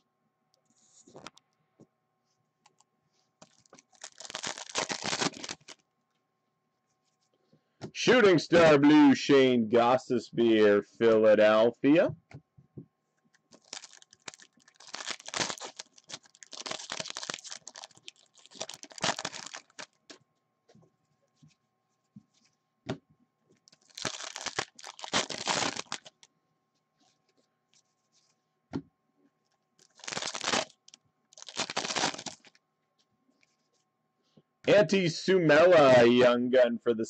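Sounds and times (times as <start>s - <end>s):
foil wrappers tearing and crinkling: 3.4s - 5.8s, 13.5s - 20.2s, 23.7s - 26.3s, 29.8s - 32.6s.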